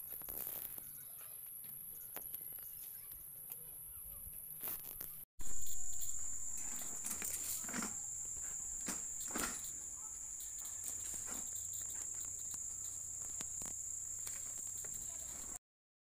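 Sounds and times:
insect drone: 5.4 - 15.6.

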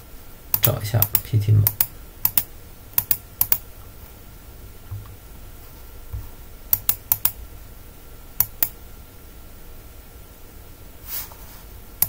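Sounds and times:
keyboard keystrokes: 0.6 - 3.6, 6.7 - 7.4.

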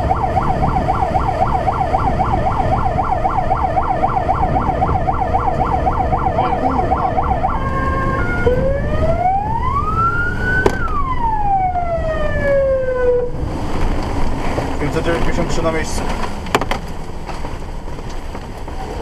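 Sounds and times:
fire engine siren: 0.0 - 13.7
truck engine rumbling: 0.0 - 19.0.

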